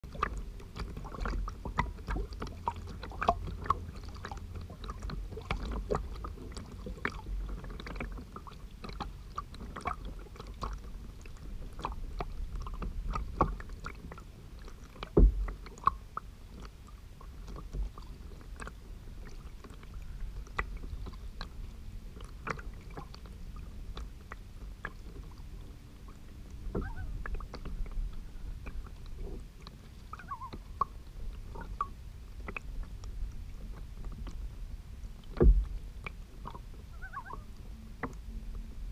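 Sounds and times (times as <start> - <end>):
low rumble: 0.0 - 38.9
water splashing against kayak hull: 0.0 - 38.9
heavy knock on hull: 15.2 - 15.5, 35.4 - 35.8.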